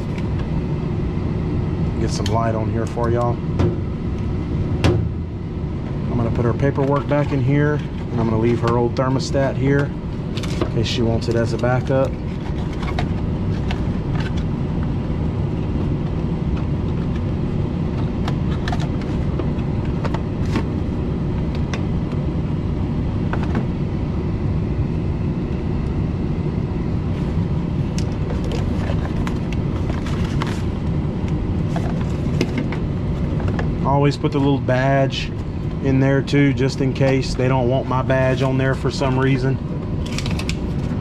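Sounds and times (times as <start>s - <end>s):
furnace blower rumbling: 0.0s - 41.0s.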